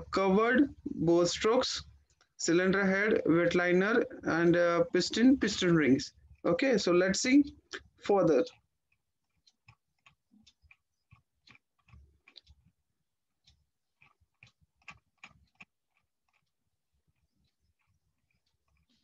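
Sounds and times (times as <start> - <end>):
computer mouse clicks: 7.5 - 12.8, 13.4 - 19.0.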